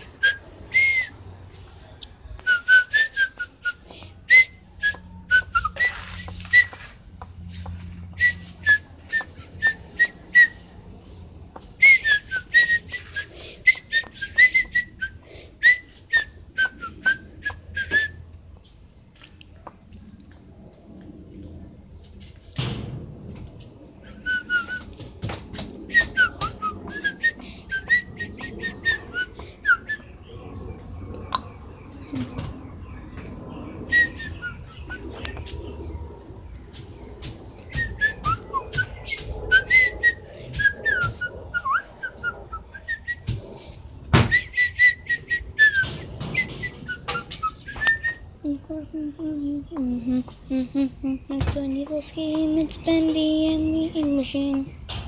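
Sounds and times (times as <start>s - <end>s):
bird singing: 25.8s - 55.0s.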